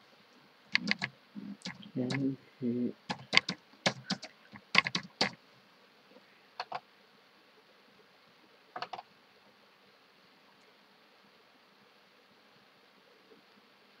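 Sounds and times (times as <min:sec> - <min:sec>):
keyboard keystrokes: 0:00.7 - 0:02.2, 0:03.1 - 0:05.4, 0:06.6 - 0:06.8
mouse clicks: 0:00.7 - 0:02.2, 0:03.1 - 0:05.4.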